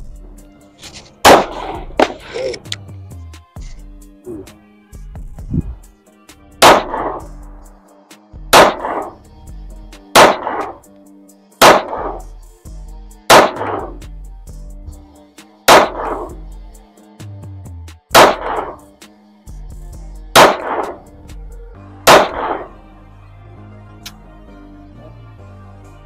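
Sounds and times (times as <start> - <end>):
background music with low beat: 0.0 - 26.0
pistol shots: 1.2 - 2.2, 6.6 - 7.3, 8.5 - 9.2, 10.2 - 10.8, 11.6 - 12.3, 13.3 - 14.0, 15.7 - 16.4, 18.2 - 18.8, 20.4 - 21.0, 22.1 - 22.7.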